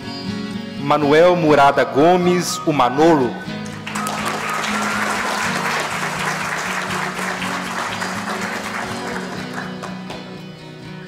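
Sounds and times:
background music: 0.0s - 11.0s
audience applauding: 3.6s - 10.5s.

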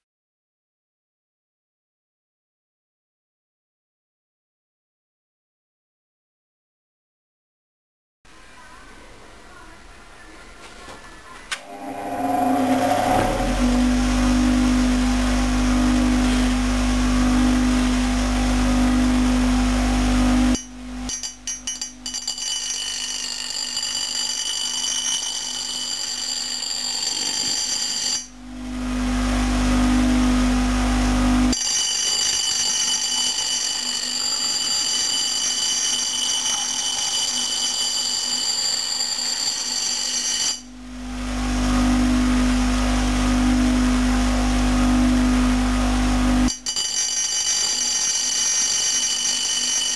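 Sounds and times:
high-pitched whine: 11.5s - 21.2s
bench grinder humming: 11.6s - 49.9s.

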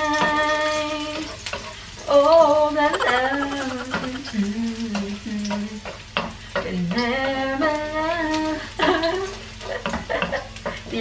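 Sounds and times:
woman singing: 0.0s - 1.3s, 2.1s - 5.9s, 6.6s - 9.3s
garlic sizzling in oil: 0.0s - 11.0s.

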